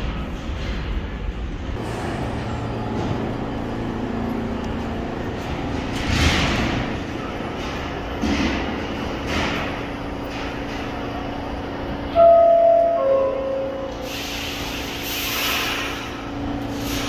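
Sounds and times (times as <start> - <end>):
subway car rumble and hum: 0.0 - 17.0
air hissing: 13.8 - 17.0.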